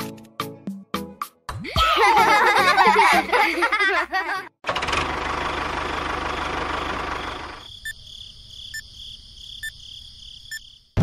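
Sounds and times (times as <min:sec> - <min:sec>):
toy tractor engine: 0:04.6 - 0:07.7.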